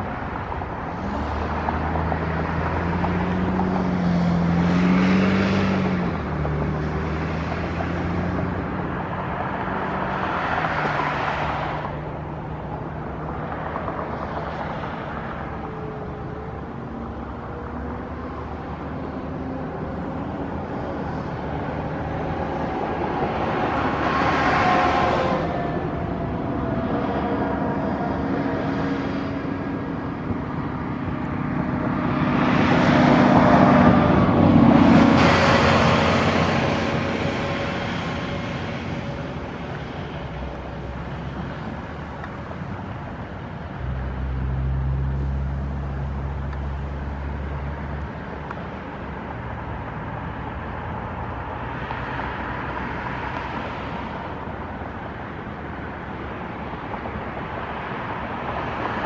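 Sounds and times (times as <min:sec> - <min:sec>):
distant jet roar: 0:00.0 - 0:44.2.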